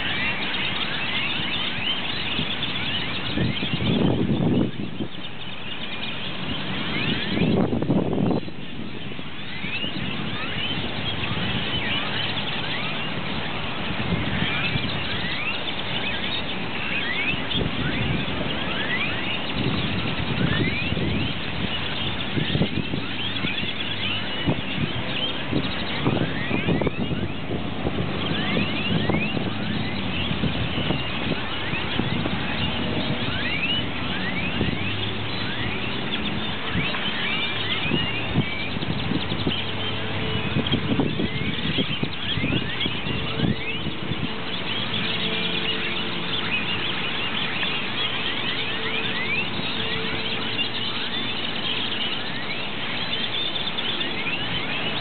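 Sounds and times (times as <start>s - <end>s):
flock of birds chirping: 0.0s - 55.0s.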